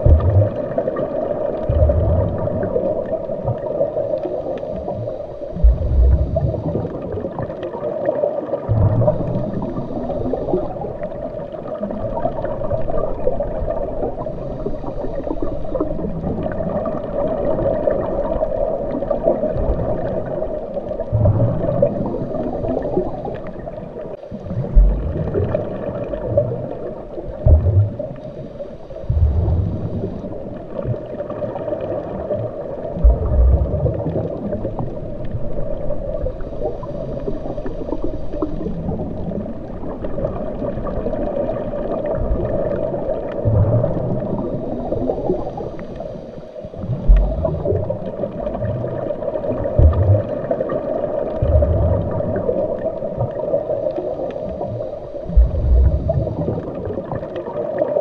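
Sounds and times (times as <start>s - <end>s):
low thumps: 0.0s - 0.5s, 5.6s - 6.5s, 24.7s - 25.3s, 27.4s - 28.0s, 29.1s - 30.0s, 47.0s - 47.6s, 49.8s - 50.2s, 55.4s - 56.3s
underwater rumbling and gurgling: 0.0s - 58.0s.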